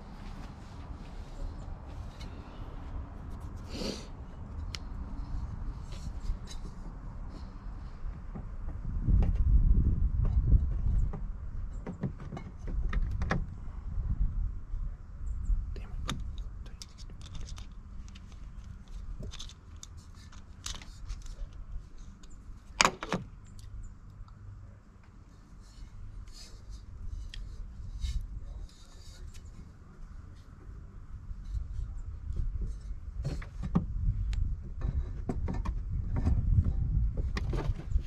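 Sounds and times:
metal parts and tools clinking: 16.3s - 21.6s.

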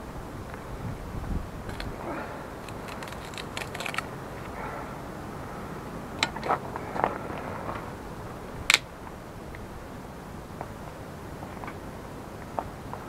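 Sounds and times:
loud wood crack: 1.7s - 4.2s.

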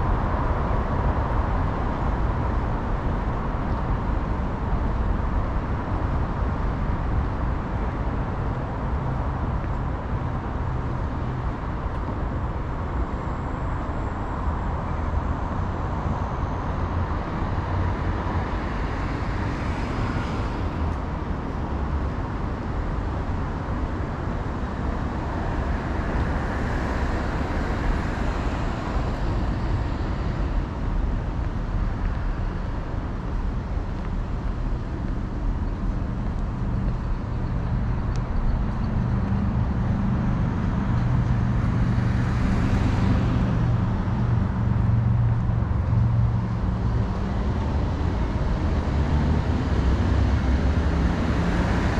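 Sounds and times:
heavy vehicle engine rumble: 0.0s - 51.9s
road traffic passing: 0.0s - 51.9s.

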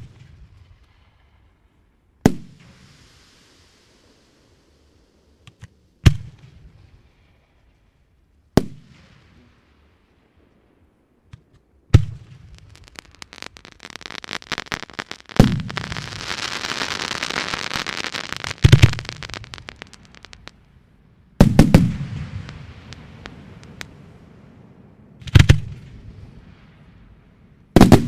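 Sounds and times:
fireworks crackling: 2.3s - 7.0s, 11.4s - 24.2s
fireworks banging: 11.4s - 20.8s, 21.4s - 24.1s, 27.8s - 28.0s.

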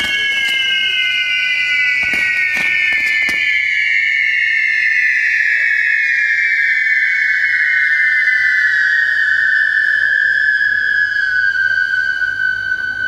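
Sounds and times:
sharp firework cracks: 0.0s - 3.8s
firework wheel whistling: 0.0s - 13.0s.

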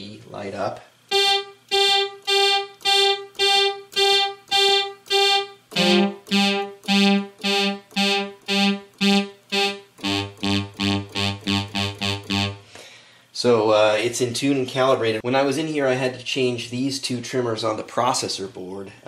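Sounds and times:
synthesizer repeating one note: 1.1s - 12.6s.

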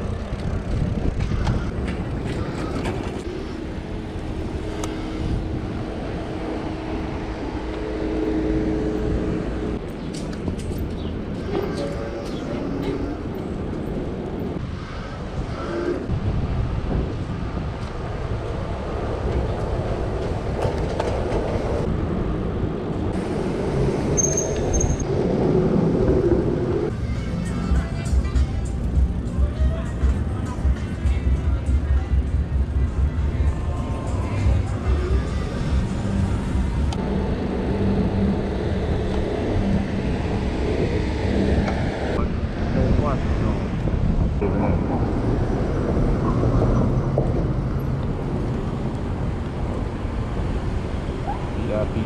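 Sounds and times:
wind buffeting microphone: 0.0s - 24.2s, 33.9s - 52.0s
bicycle rolling noise: 0.0s - 42.7s
high-pitched squeal: 23.8s - 25.2s.

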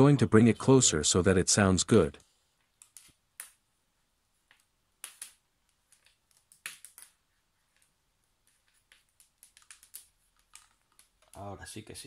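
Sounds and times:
cable rustling: 4.4s - 12.0s.

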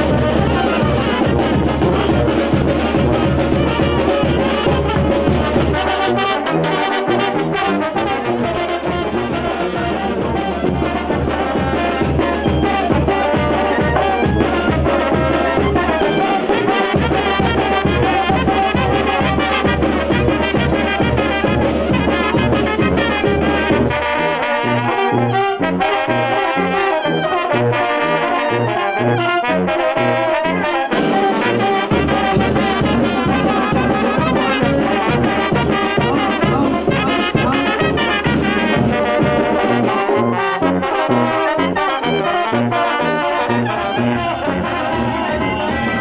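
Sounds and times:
brass band playing: 0.0s - 46.0s.

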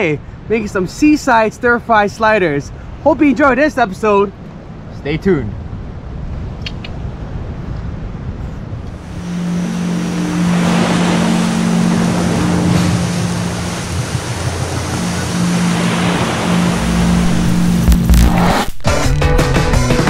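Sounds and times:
wind and water rushing: 0.0s - 18.8s
motorboat engine humming: 8.9s - 18.4s.

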